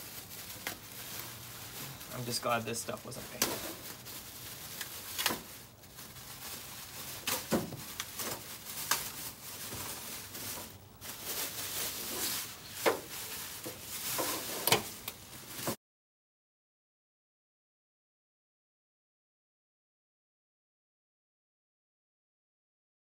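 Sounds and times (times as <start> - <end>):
plastic wrapping crinkling: 0.0 - 15.8.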